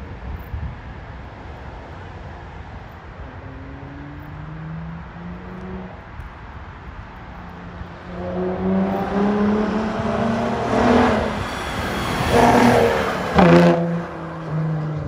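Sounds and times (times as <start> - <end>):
car engine at low revs: 1.9 - 11.2
car accelerating: 3.2 - 15.0.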